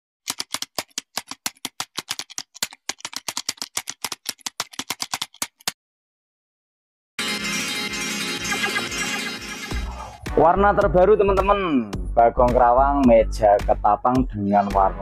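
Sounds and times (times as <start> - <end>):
keyboard typing clicks: 0.3 - 5.8.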